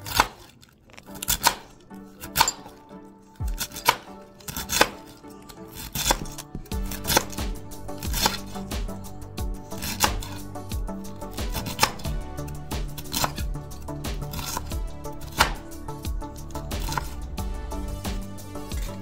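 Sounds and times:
knife chopping on cutting board: 0.0s - 0.5s, 1.2s - 1.7s, 3.5s - 5.1s, 5.7s - 9.0s, 9.8s - 10.4s, 11.4s - 12.2s, 14.1s - 15.7s, 16.8s - 17.2s
background music: 0.0s - 19.0s.

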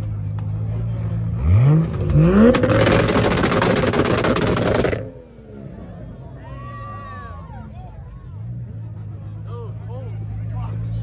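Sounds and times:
car engine idling and revving: 0.0s - 11.0s
exhaust pops and crackles: 1.8s - 5.1s.

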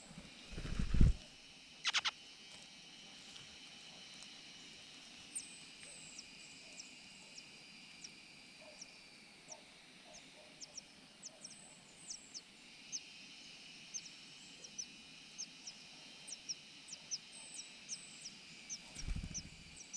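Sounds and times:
nestlings begging chirps: 1.8s - 2.1s, 10.1s - 13.1s, 13.8s - 19.9s.

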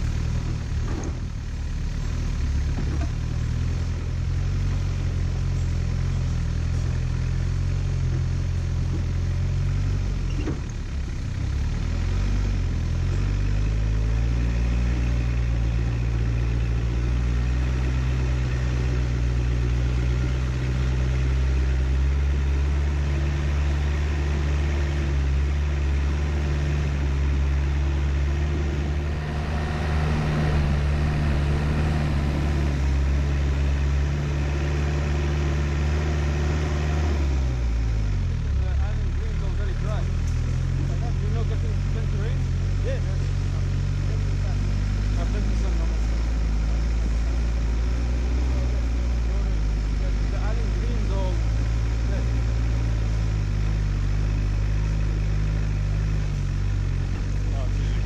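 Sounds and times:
vehicle engine running at low speed: 0.0s - 58.0s
rushing noise: 28.8s - 33.2s.

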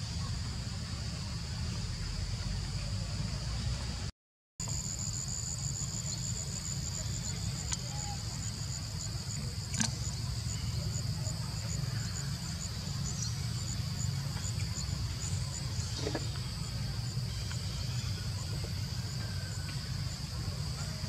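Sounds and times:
constant low rumble: 0.0s - 21.0s
insects chirping: 4.6s - 21.0s.

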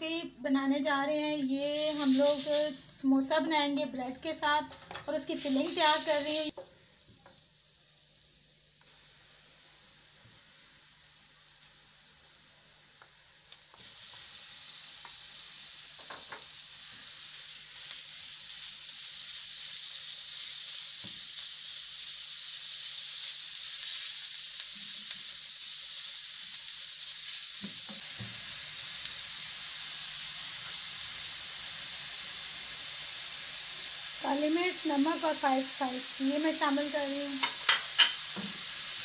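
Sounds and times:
meat sizzling in a frying pan: 0.6s - 39.0s.

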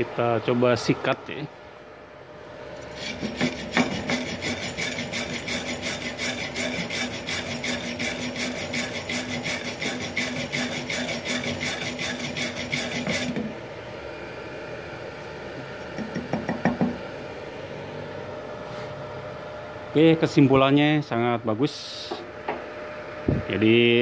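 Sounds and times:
wire brush scrubbing metal: 2.8s - 13.4s.

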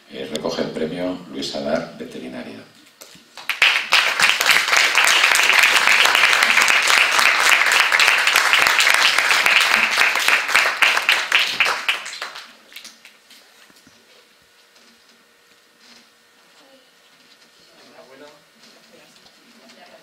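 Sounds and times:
audience applauding: 3.3s - 12.9s.

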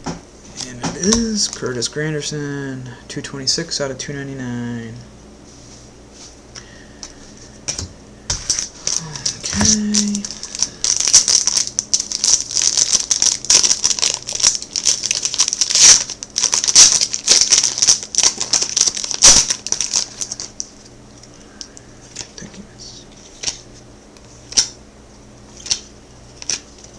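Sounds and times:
plastic packaging crinkling: 8.3s - 21.4s, 23.1s - 24.8s, 25.5s - 26.9s.

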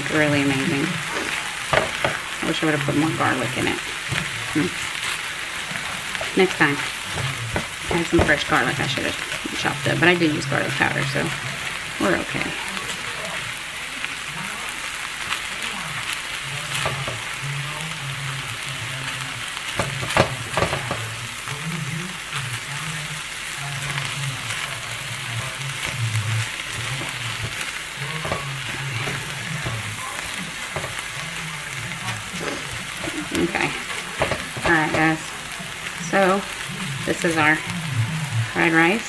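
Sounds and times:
rice sizzling in a skillet: 0.0s - 39.0s
spatula scraping a pan: 0.1s - 13.6s, 16.7s - 17.4s, 19.5s - 21.5s, 23.8s - 36.6s
knock on a pan: 1.7s - 2.2s, 16.8s - 17.2s, 19.8s - 21.0s, 30.7s - 31.0s, 34.2s - 35.1s.

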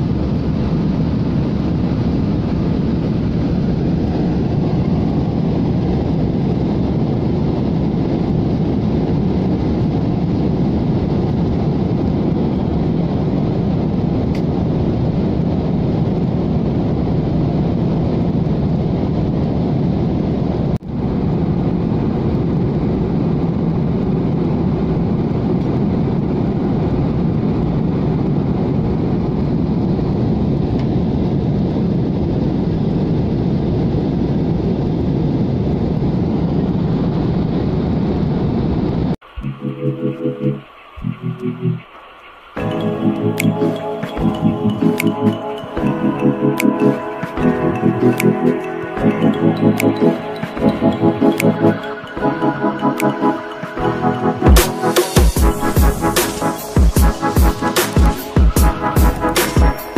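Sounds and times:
airliner cabin jet rush: 0.0s - 59.9s.

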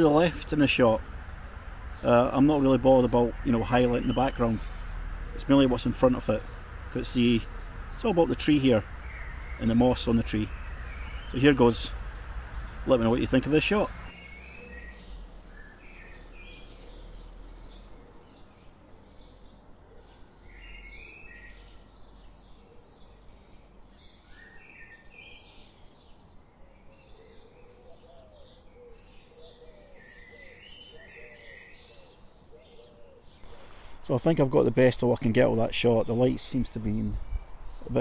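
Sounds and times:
low background rumble: 0.0s - 14.2s
songbirds chirping: 0.0s - 38.0s.

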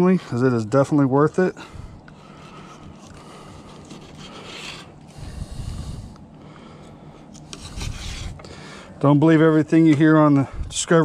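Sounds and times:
knife scraping fish fillet: 2.3s - 5.0s.

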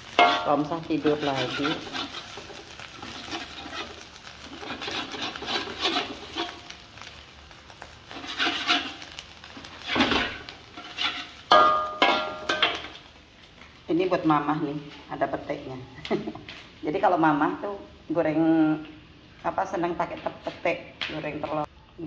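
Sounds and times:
spatula scraping a wok: 0.0s - 7.3s, 8.0s - 13.1s.

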